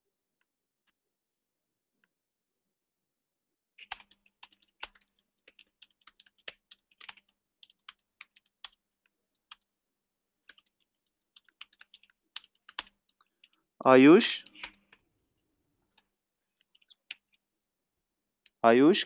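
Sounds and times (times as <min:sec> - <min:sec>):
faint typing on keyboard: 0:03.8 - 0:09.8, 0:10.4 - 0:17.5.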